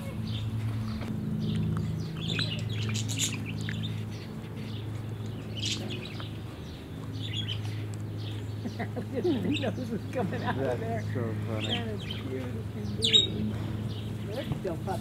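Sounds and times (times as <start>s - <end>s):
small birds chirping: 0.0s - 15.0s
puppy gnawing a dry stick: 3.1s - 8.5s.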